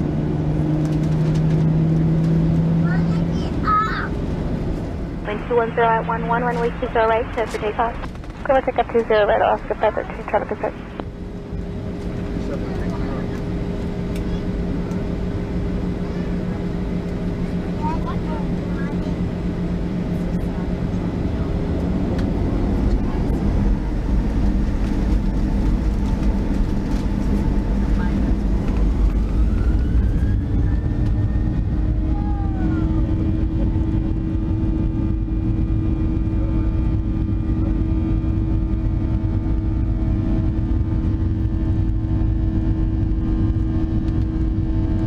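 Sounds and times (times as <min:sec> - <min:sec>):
jet engines at takeoff power: 0:00.0 - 0:45.0.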